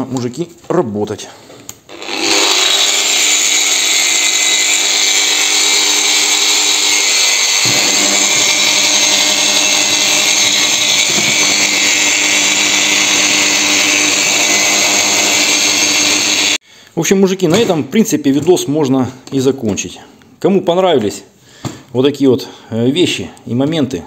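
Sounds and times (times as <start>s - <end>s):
angle grinder high whine: 1.9s - 16.6s.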